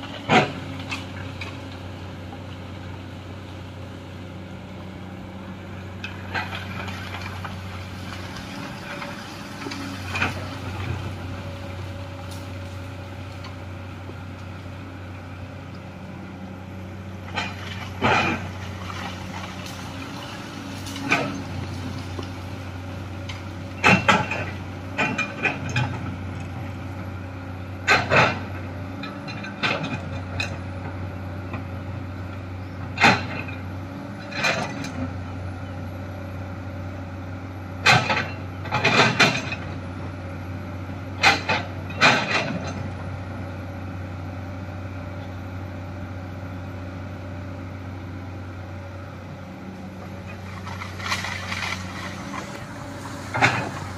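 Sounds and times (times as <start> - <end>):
excavator diesel engine running: 0.0 - 53.9
bucket scraping rocky earth: 50.3 - 53.9.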